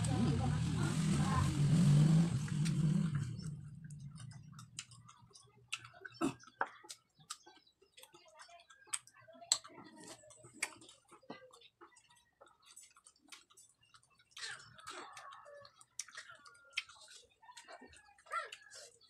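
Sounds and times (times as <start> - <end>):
low rumble: 0.0 - 4.6.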